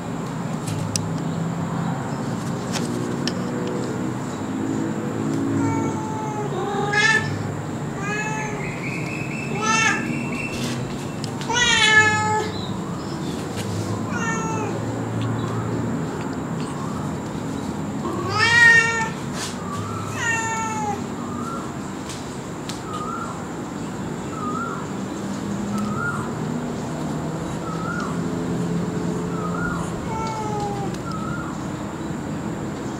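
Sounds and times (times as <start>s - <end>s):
cat meowing: 5.5s - 8.9s, 9.5s - 10.2s, 11.4s - 12.6s, 14.1s - 14.9s, 18.2s - 19.2s, 20.0s - 21.1s, 29.5s - 31.0s.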